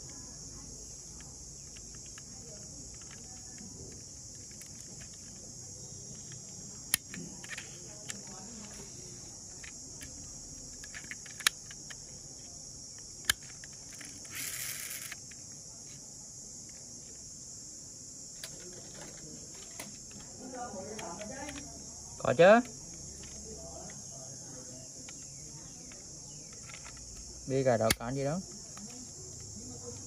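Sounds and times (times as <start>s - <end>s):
insect chorus: 0.0s - 30.0s
sharp clicks: 27.8s - 29.5s.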